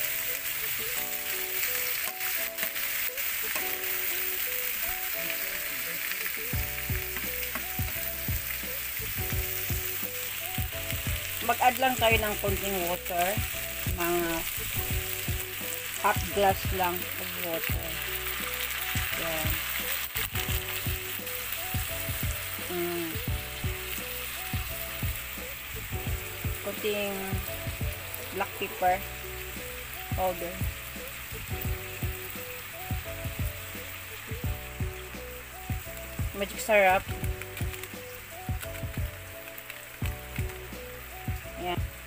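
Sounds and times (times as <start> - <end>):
soft background music: 0.0 - 42.0
vegetables sizzling in oil: 0.0 - 42.0.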